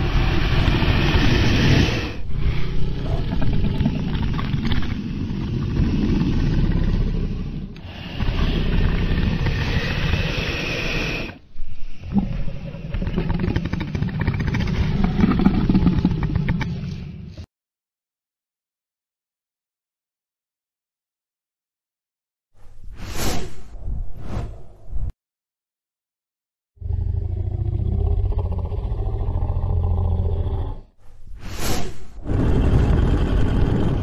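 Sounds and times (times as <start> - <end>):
dragon roars: 0.0 - 11.4, 26.8 - 30.9, 32.2 - 34.0.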